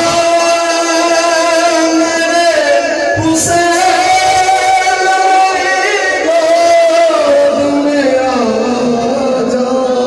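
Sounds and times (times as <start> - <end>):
men chanting a lament: 0.0 - 10.0.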